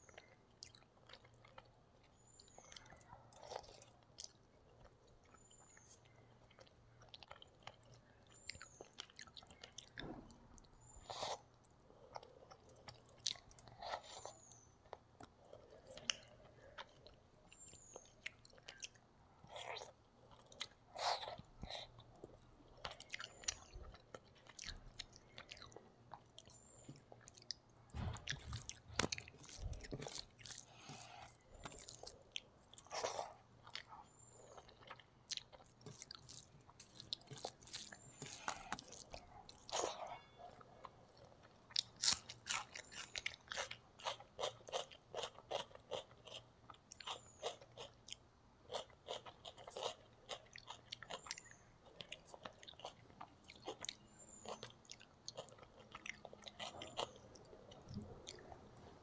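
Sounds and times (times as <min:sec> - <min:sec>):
wet chewing and smacking: 0:00.0 - 0:59.0
low thump: 0:27.9 - 0:28.8
crunchy bites of onion: 0:28.0 - 0:32.2, 0:41.7 - 0:46.4.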